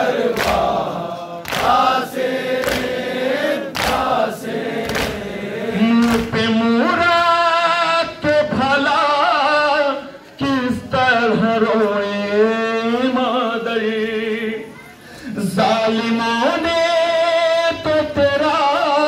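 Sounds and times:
men singing in chorus: 0.0s - 14.6s
man singing lament into microphone: 5.6s - 14.7s, 15.3s - 19.0s.

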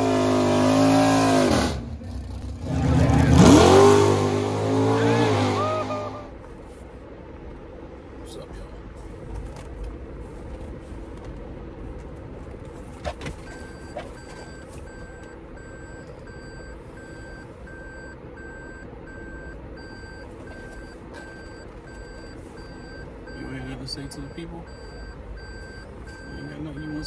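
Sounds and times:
reverse warning beeping: 13.4s - 27.0s.

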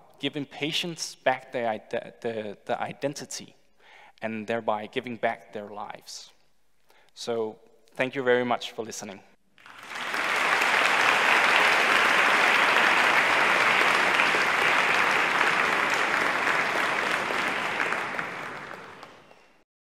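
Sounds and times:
audience applauding: 9.6s - 19.6s.

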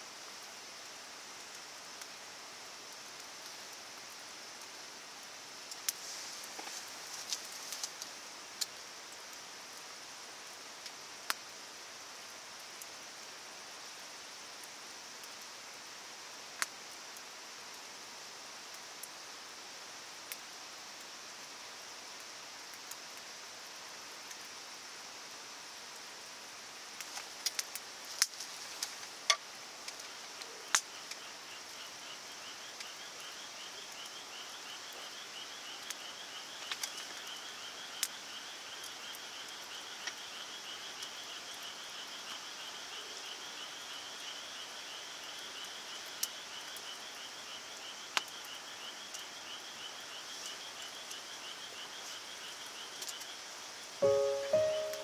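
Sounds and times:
wood fire crackling: 2.9s - 9.3s, 26.9s - 31.2s, 36.6s - 37.3s.

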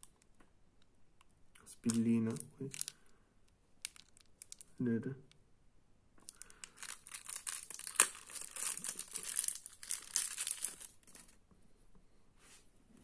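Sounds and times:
wrapping crinkling: 1.8s - 3.0s, 3.8s - 4.8s, 6.2s - 11.4s.

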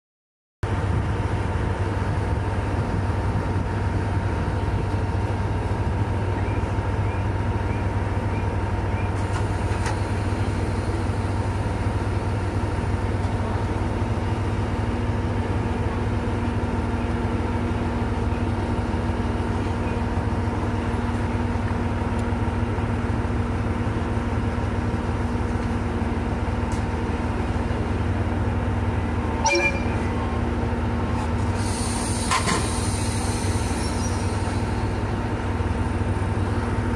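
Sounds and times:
diesel railcar engine idling: 0.6s - 36.9s
brief sharp sound: 29.5s - 30.2s.

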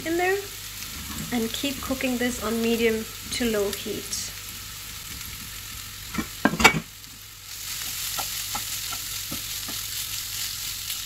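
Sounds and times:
chicken and onions sizzling in pan: 0.0s - 11.0s
wooden spoon knocking on pan: 6.1s - 6.9s, 7.8s - 9.9s.

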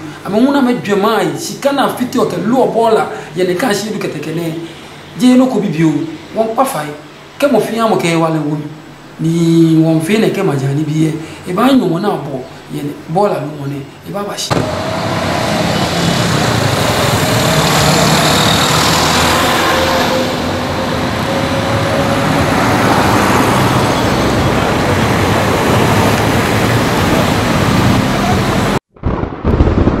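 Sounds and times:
roadside traffic: 2.4s - 7.4s, 13.9s - 28.9s.

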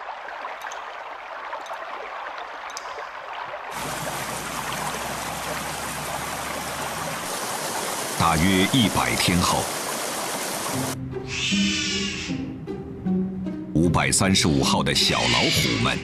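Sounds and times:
stream rushing: 0.0s - 11.0s
water drops falling: 0.0s - 11.0s
water trickling: 0.0s - 11.0s.

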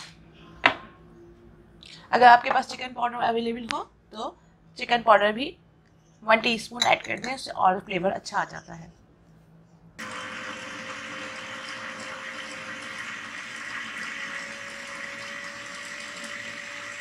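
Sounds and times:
electric food chopper grinding: 10.0s - 17.0s.

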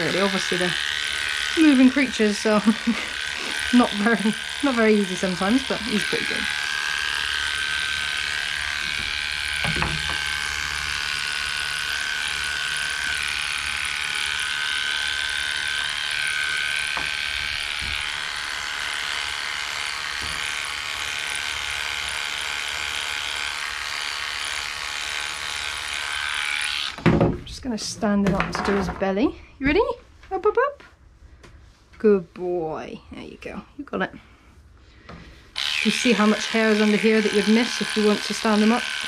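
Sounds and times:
electric dog clippers humming: 0.0s - 27.4s, 35.3s - 39.0s.

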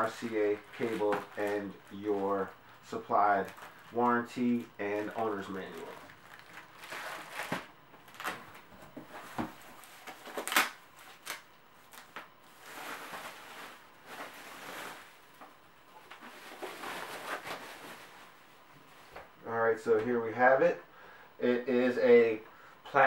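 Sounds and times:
plastic bag rustling: 0.0s - 2.6s, 3.2s - 19.2s.

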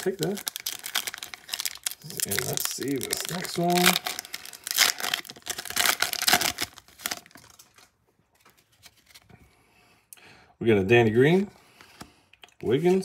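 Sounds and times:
foil wrapper crinkling and tearing: 0.0s - 7.9s.

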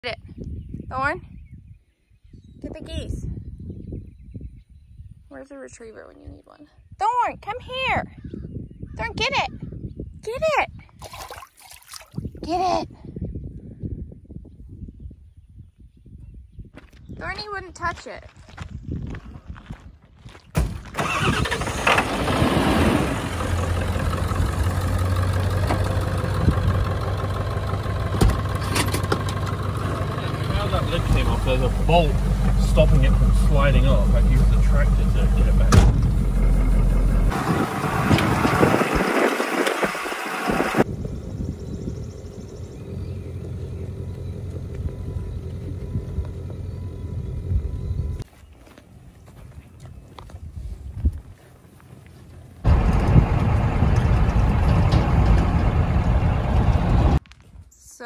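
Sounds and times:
pickup truck engine starting: 20.8s - 48.2s, 52.6s - 57.2s.

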